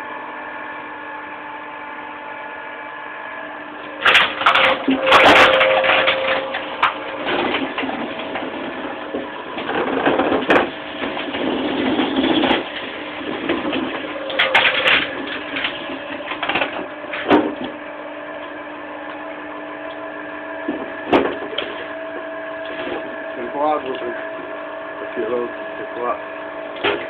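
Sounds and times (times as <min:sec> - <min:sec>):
log splitter motor humming: 0:00.0 - 0:27.0
wood grinding and splintering: 0:03.8 - 0:19.4, 0:20.5 - 0:27.0
wood cracking: 0:03.9 - 0:17.8, 0:26.7 - 0:27.0.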